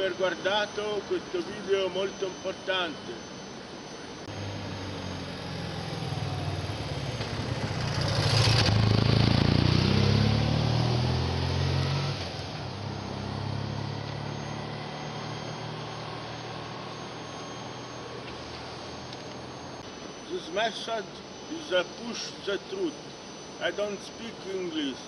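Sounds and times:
vehicle engine hum: 4.2 - 20.1.

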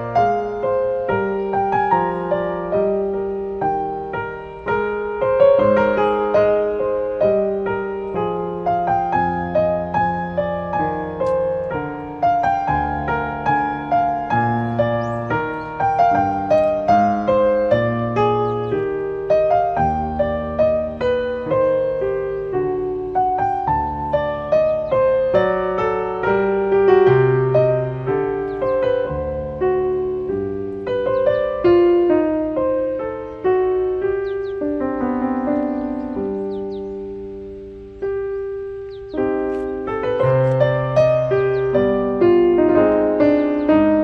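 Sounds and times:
slow piano music: 0.0 - 44.0.

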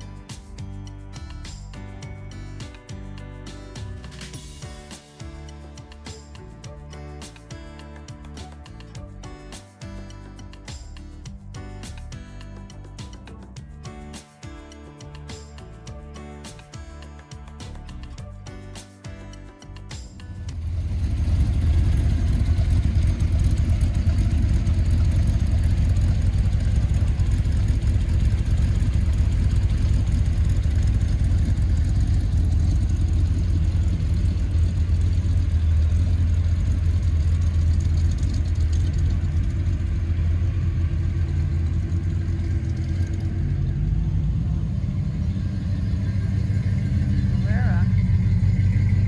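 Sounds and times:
car engines rumbling: 20.4 - 49.0.

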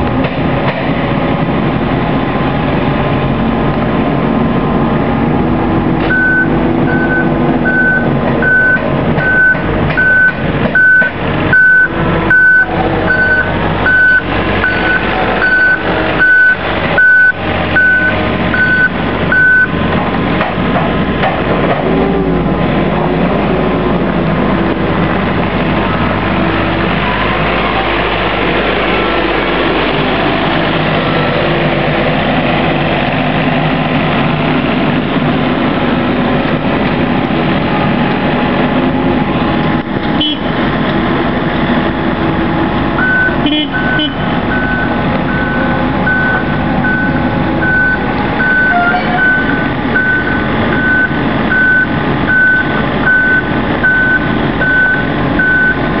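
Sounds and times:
engine noise: 0.0 - 56.0
forklift reversing alarm beeping: 6.1 - 19.8, 43.0 - 55.9.

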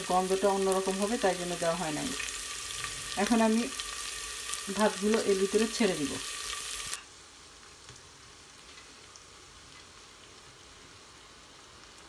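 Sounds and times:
faint steady hiss: 0.0 - 12.0
seeds sizzling in hot oil: 0.0 - 12.0.

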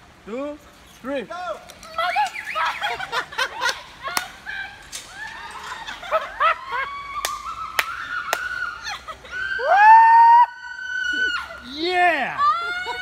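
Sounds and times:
woman screaming: 4.5 - 13.0.

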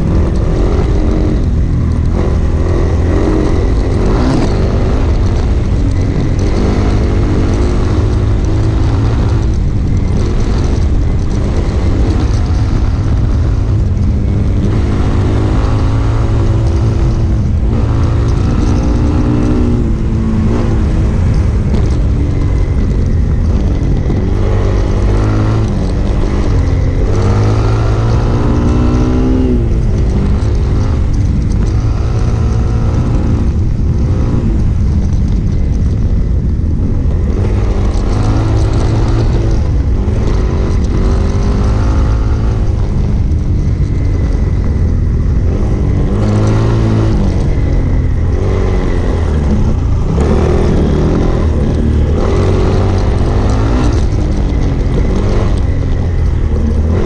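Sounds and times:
motorcycle engine revving: 0.0 - 57.0
wind rush on microphone: 0.0 - 57.0.

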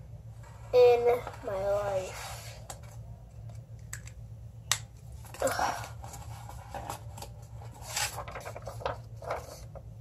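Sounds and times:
low steady hum: 0.0 - 10.0
paper rustling: 5.2 - 10.0.

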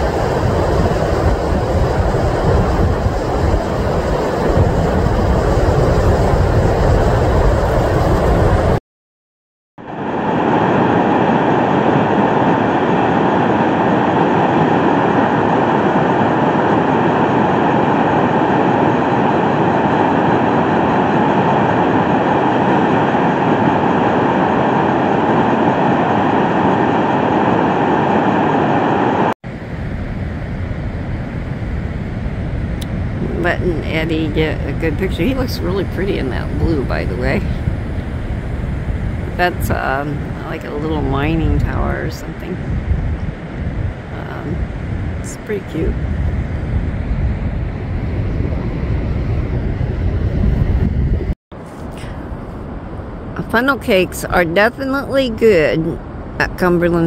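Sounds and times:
wind rumbling on microphone: 0.0 - 8.8, 9.8 - 57.0.

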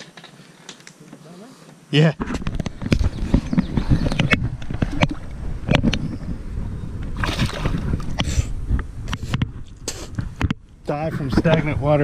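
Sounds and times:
fish splashing in water: 7.2 - 8.0.

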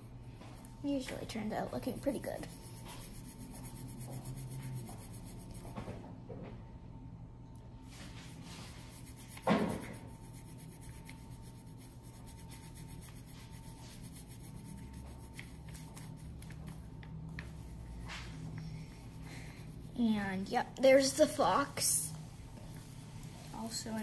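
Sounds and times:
crayon scratching on paper: 0.9 - 5.8, 8.3 - 21.4.

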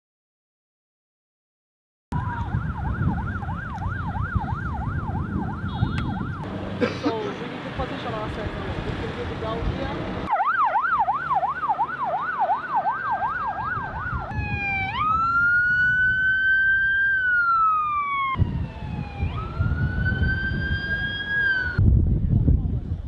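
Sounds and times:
siren wailing: 2.1 - 6.5, 10.2 - 21.8
emergency siren yelp: 2.1 - 6.6, 10.2 - 21.8.

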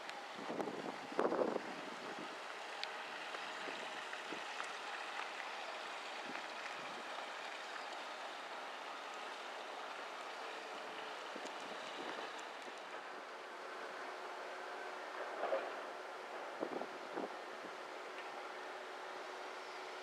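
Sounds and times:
outdoor background hiss: 0.0 - 20.0
wind buffeting microphone: 0.3 - 2.4
faint ticks: 2.8 - 8.1, 11.2 - 13.0.

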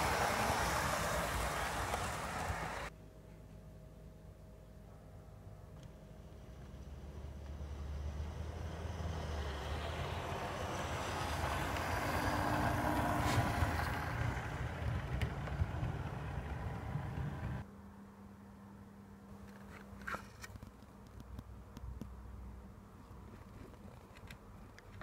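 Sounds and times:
model train running on track: 0.0 - 2.9, 9.4 - 17.6.

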